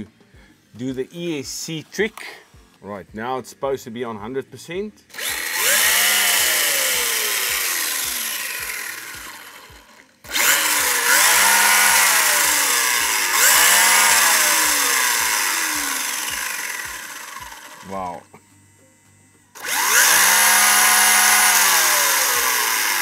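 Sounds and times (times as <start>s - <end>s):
electric motor whine revving: 5.1s - 23.0s.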